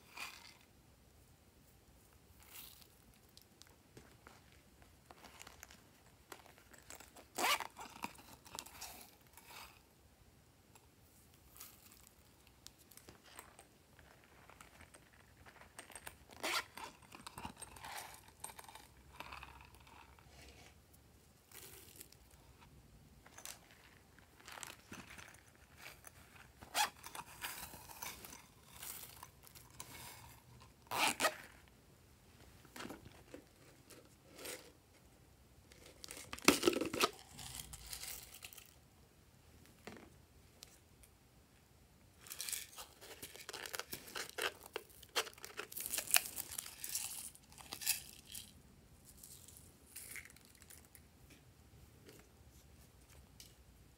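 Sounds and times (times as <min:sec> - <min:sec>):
plastic crinkling and rustling: 0:42.3 - 0:51.0.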